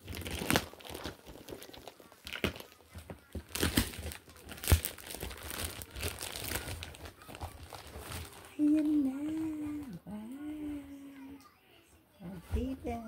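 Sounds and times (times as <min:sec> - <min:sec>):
plastic bag crinkling and tearing: 0:00.0 - 0:09.1.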